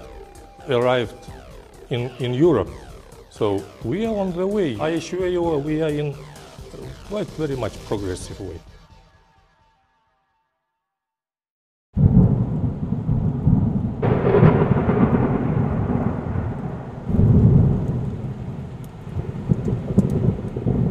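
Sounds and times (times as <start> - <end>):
rumbling thunder: 12.0 - 20.9
steady rain: 12.1 - 20.9.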